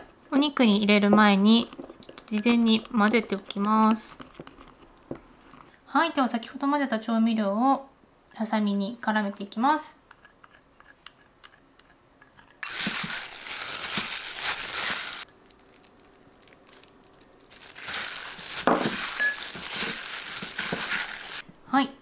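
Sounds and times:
plastic bag crinkling: 0:12.7 - 0:21.4.

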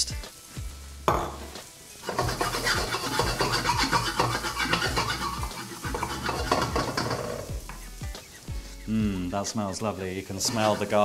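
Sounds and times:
onions sizzling in oil: 0:00.0 - 0:11.0
wooden spatula scraping wok: 0:02.0 - 0:07.7, 0:09.8 - 0:11.0.

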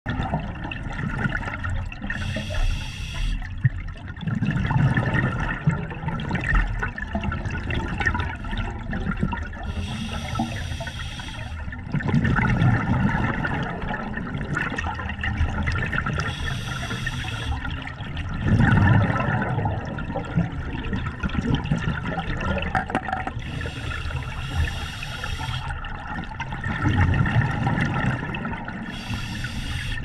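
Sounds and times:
exhaled bubbles rushing: 0:00.1 - 0:02.4, 0:03.4 - 0:11.0, 0:11.6 - 0:30.0
diver inhaling through regulator: 0:02.1 - 0:03.4, 0:09.6 - 0:11.7, 0:16.2 - 0:17.7, 0:23.4 - 0:25.8, 0:28.9 - 0:30.0.

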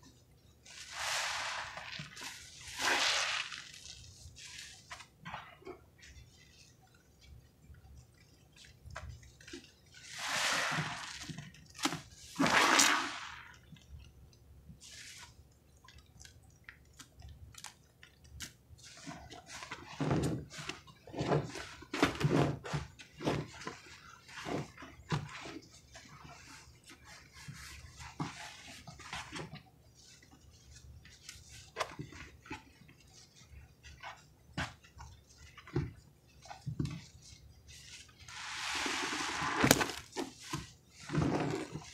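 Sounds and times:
sponge squelching: 0:00.6 - 0:14.0, 0:14.8 - 0:41.9
small wet clicks: 0:15.5 - 0:18.6.

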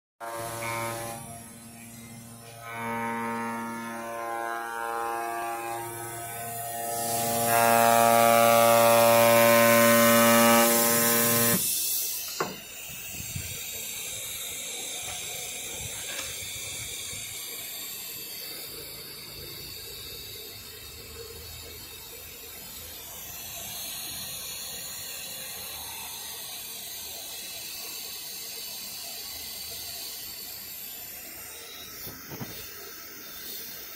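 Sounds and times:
cutting machine humming: 0:00.2 - 0:12.6
loud air hiss: 0:05.7 - 0:33.9.

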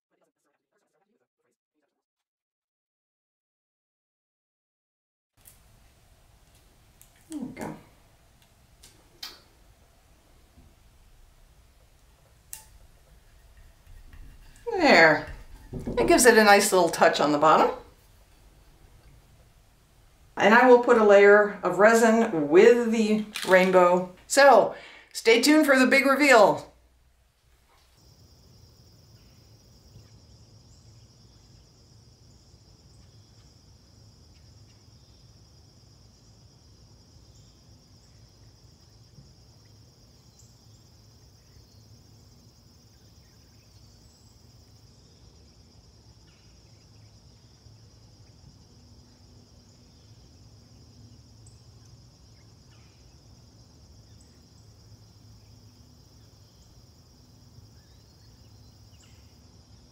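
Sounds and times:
high-pitched insect chorus: 0:27.7 - 0:59.9.

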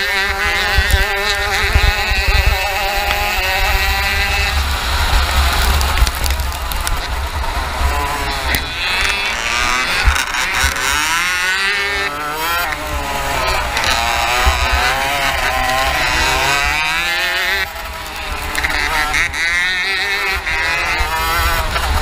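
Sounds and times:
wind rumble: 0:00.0 - 0:18.6
kart engine revving: 0:00.0 - 0:22.0
other karts running: 0:00.0 - 0:22.0.

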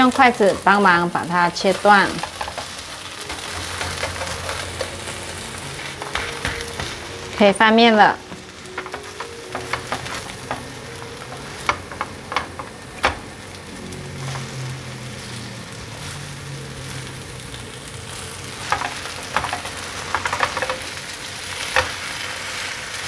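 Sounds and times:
pancake sizzling in oil: 0:00.0 - 0:23.0
spatula scraping and tapping pan: 0:01.6 - 0:07.1, 0:08.3 - 0:13.2, 0:18.6 - 0:21.0.

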